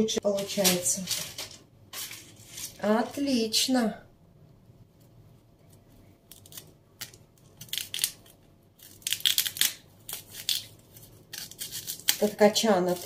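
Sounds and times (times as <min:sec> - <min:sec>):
knife crunching through cauliflower: 0:06.3 - 0:13.0.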